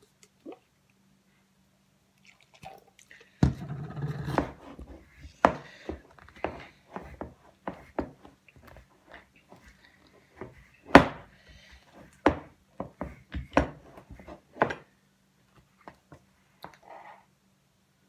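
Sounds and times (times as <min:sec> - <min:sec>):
spoon stirring thick slime: 0:04.2 - 0:14.8.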